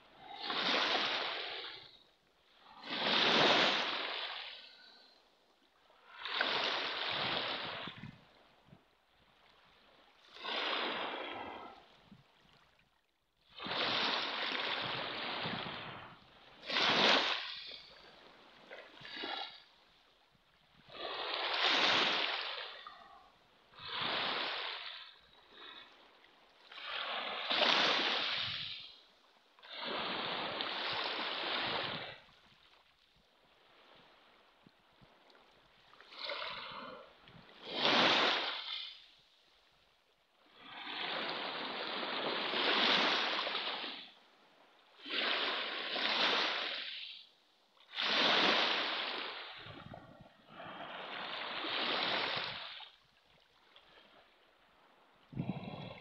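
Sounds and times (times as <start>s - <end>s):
waves washing on pebble beach: 0.2s - 2.0s, 2.6s - 5.0s, 6.0s - 8.1s, 13.5s - 18.0s, 20.9s - 22.9s, 26.7s - 29.0s, 37.6s - 39.1s, 45.0s - 47.2s, 47.9s - 49.8s, 50.5s - 53.0s.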